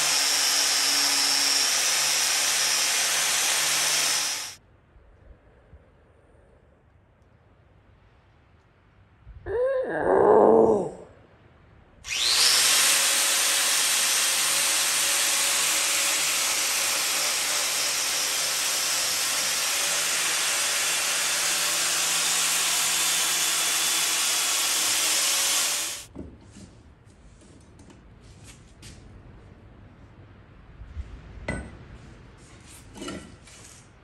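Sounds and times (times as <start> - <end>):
angle grinder grinding steel: 0.0 - 4.6, 12.1 - 26.1.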